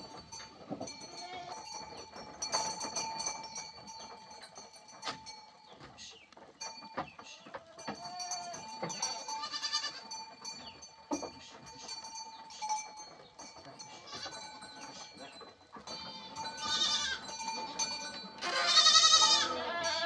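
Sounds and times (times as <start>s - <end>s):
knocks and clinks from animals: 0.0s - 20.0s
goats bleating: 1.0s - 1.7s, 7.6s - 10.2s, 13.9s - 14.6s, 15.9s - 20.0s.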